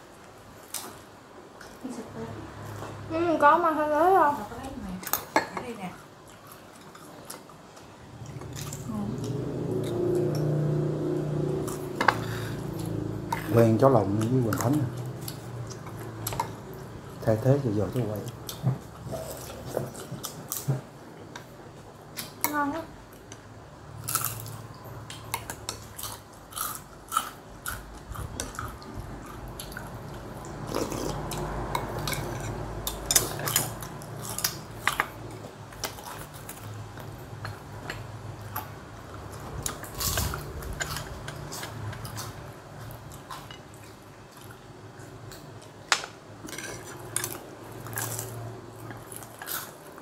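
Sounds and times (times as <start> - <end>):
low steady hum: 0.0 - 50.0
chewing and biting fried food: 24.0 - 45.9, 46.5 - 50.0.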